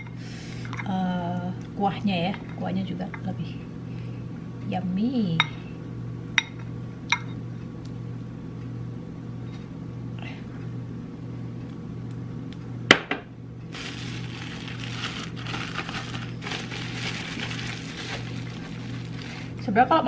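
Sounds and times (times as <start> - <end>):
steady low hum: 0.0 - 20.0
plastic oven bag rustling: 13.7 - 19.7.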